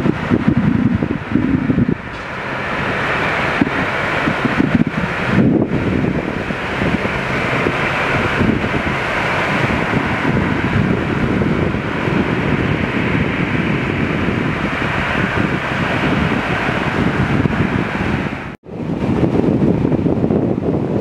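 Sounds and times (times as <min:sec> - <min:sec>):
wind buffeting the microphone: 0:00.0 - 0:21.0.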